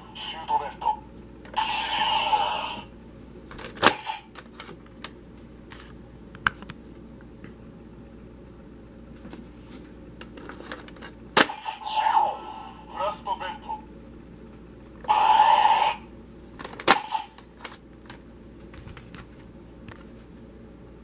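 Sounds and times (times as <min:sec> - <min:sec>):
toy electronic sound effect: 0:01.6 - 0:02.8, 0:15.1 - 0:16.0.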